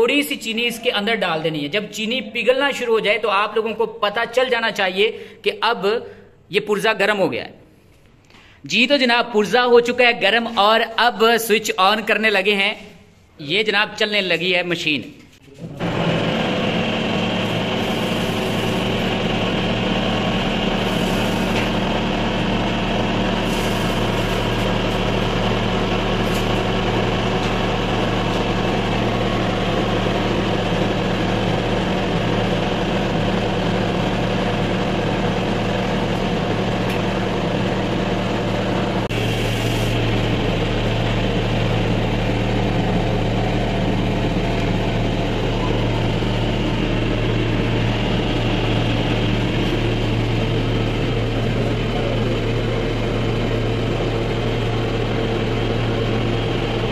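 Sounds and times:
cotton candy machine motor humming: 0:15.6 - 0:56.9.

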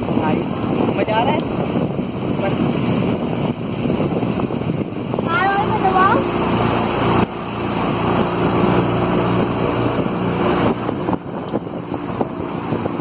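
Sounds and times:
motorboat engine humming: 0:00.0 - 0:13.0
water splashing against hull: 0:00.0 - 0:13.0.

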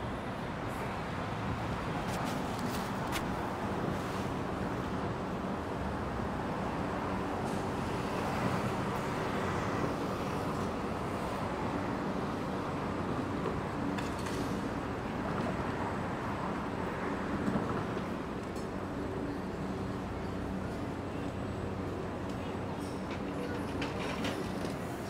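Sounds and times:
city street traffic: 0:00.0 - 0:25.0.

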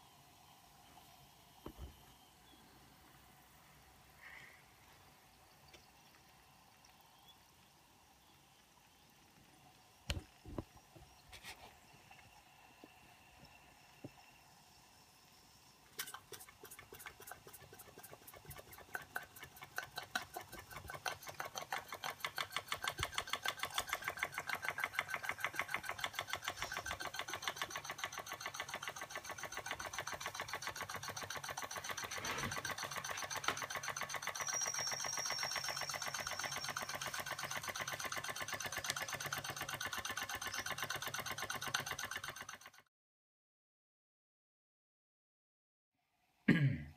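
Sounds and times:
steam engine chuffing: 0:16.0 - 0:42.8
thin high tone: 0:32.2 - 0:37.4.

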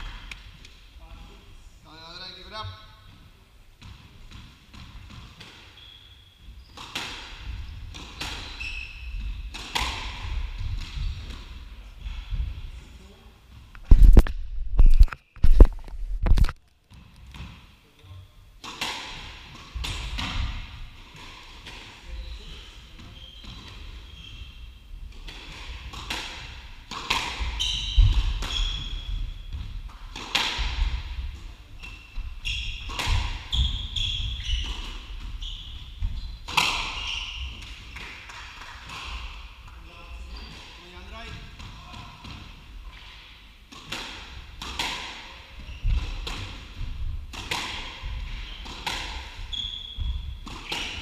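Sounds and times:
shoes squeaking on wooden floor: 0:07.5 - 0:09.5, 0:27.4 - 0:29.6, 0:31.7 - 0:37.6, 0:48.1 - 0:51.0.

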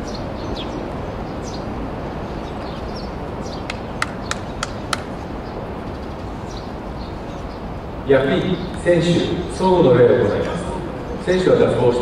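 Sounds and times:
high falling bird chirps: 0:00.0 - 0:09.8
outdoor stadium noise: 0:00.0 - 0:12.0
sharp clicks: 0:03.7 - 0:05.1.

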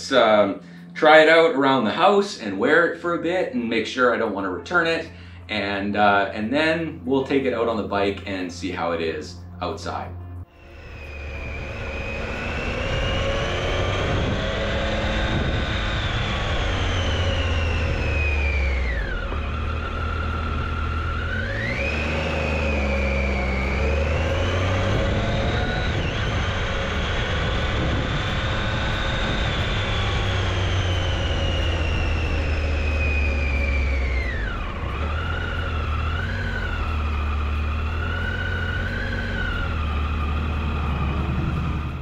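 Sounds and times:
motorcycle engine accelerating: 0:10.2 - 0:42.0
wind rumble on microphone: 0:10.7 - 0:21.8, 0:23.8 - 0:35.9.

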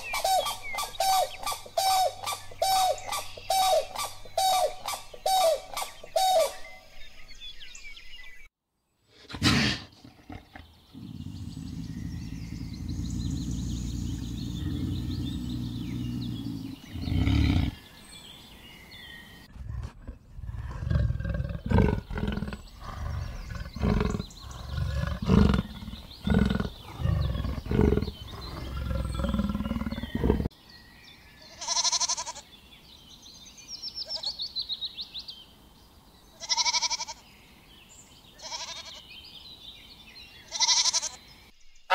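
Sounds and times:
leopard growling and grunting: 0:09.2 - 0:17.8, 0:19.5 - 0:30.5
goat bleating: 0:31.6 - 0:32.4, 0:36.4 - 0:37.2, 0:38.4 - 0:39.0, 0:40.5 - 0:41.2.

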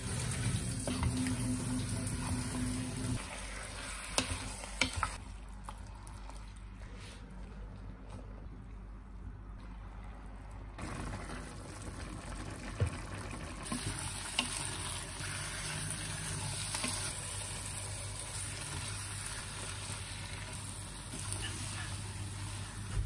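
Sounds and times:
food sizzling in a pan: 0:00.0 - 0:05.2, 0:13.2 - 0:23.0.

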